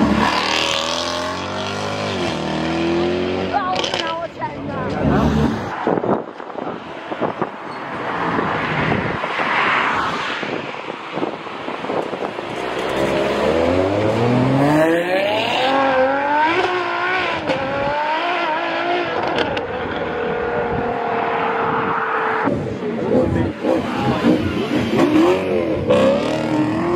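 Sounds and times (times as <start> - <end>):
car engine accelerating hard: 12.6 - 26.9.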